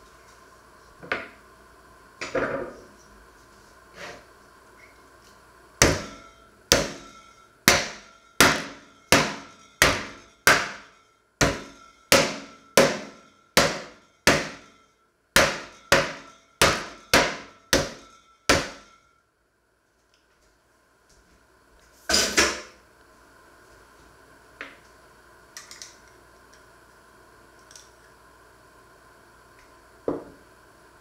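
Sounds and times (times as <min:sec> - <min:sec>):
metal pot pounding meat on board: 0:05.8 - 0:07.1, 0:07.7 - 0:14.7, 0:15.4 - 0:18.9.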